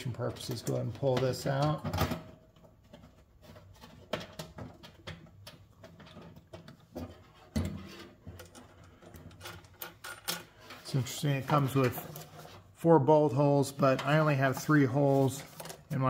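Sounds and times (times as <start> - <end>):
plastic knocking and scraping: 0.6 - 10.0.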